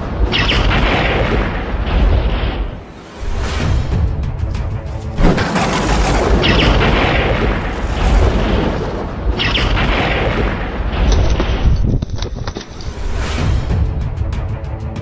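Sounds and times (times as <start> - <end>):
loud blast: 5.2 - 11.4.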